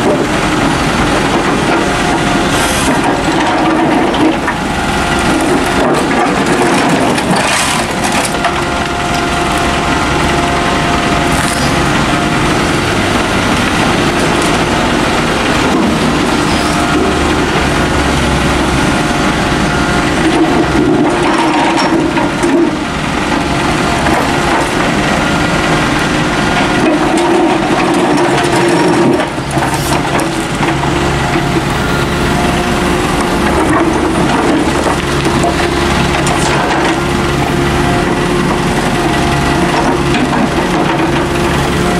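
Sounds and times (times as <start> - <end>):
excavator diesel engine running: 0.0 - 41.9
bucket scraping dirt and stones: 15.5 - 17.3.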